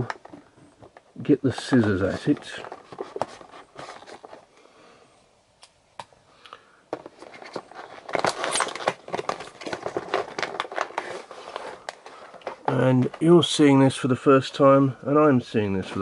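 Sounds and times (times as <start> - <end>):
packaging scraping and crinkling: 0.0 - 4.5, 7.0 - 13.6.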